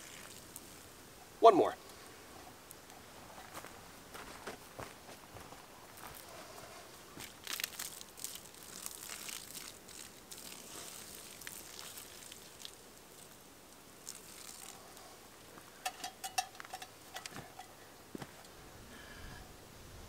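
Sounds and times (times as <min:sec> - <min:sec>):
water sizzling on coals: 0:00.0 - 0:03.0, 0:07.1 - 0:18.6.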